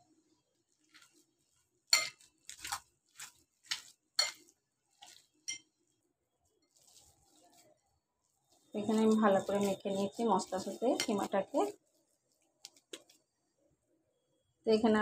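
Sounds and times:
bangles clinking on glass bowl: 1.9s - 2.3s, 5.4s - 5.7s, 8.9s - 11.4s.

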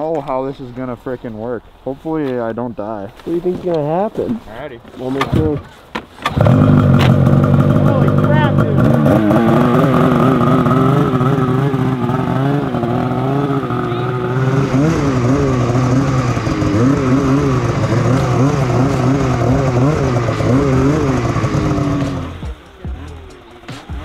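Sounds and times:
snowmobile engine revving: 6.2s - 24.0s.

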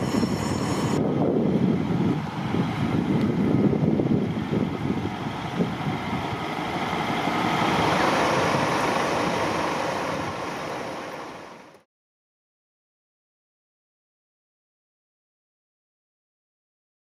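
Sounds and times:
vehicle engine rumble: 0.0s - 11.8s
street traffic: 0.0s - 11.9s.

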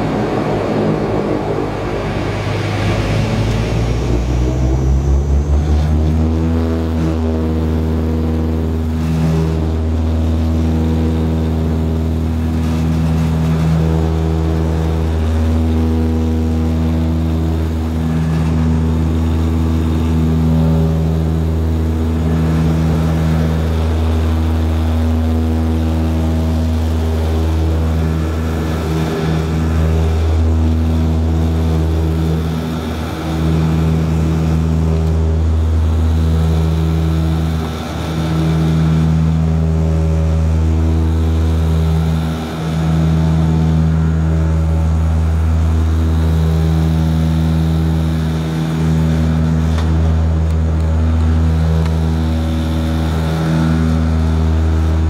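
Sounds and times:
turboprop engine drone: 0.0s - 55.0s.

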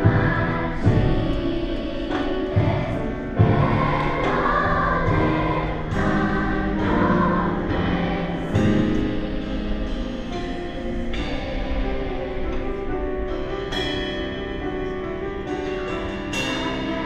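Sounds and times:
children's choir singing: 0.0s - 17.0s
low accompaniment: 0.0s - 17.0s.

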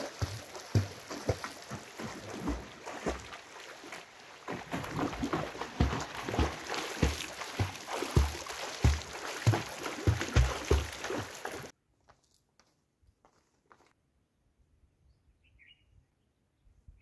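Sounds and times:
swimmer's strokes splashing water: 0.0s - 11.7s.

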